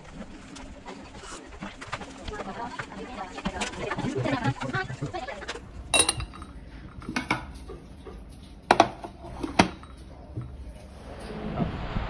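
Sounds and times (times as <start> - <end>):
tableware clinking: 5.9 - 10.8.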